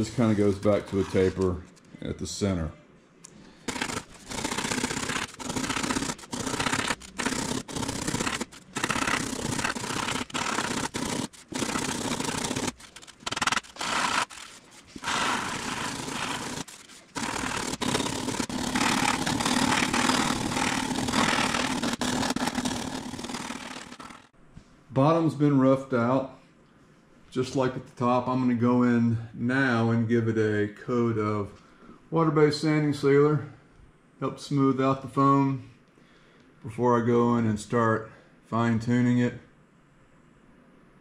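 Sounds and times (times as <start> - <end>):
sanding block scraping foam: 3.7 - 24.3.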